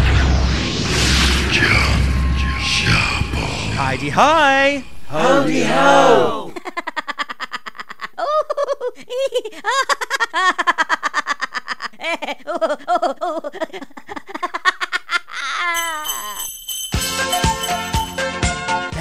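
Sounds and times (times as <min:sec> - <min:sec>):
high-pitched comic laughing: 0:06.5 - 0:16.4
bright tinkling: 0:15.8 - 0:18.4.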